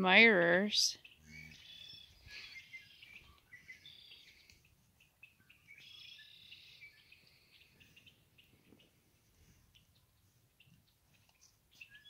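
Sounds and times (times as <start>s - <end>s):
songbirds trilling: 0.5s - 12.0s
short bird chirps: 1.0s - 9.0s.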